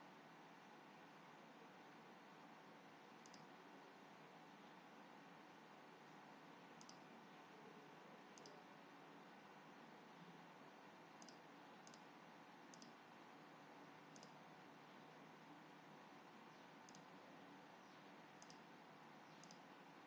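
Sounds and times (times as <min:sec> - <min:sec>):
low steady hiss: 0:00.0 - 0:20.0
computer mouse clicks: 0:03.2 - 0:03.5, 0:06.8 - 0:07.1, 0:08.4 - 0:08.6, 0:11.2 - 0:12.1, 0:12.7 - 0:13.0, 0:14.1 - 0:14.4, 0:16.8 - 0:17.1, 0:18.4 - 0:18.7, 0:19.3 - 0:19.7.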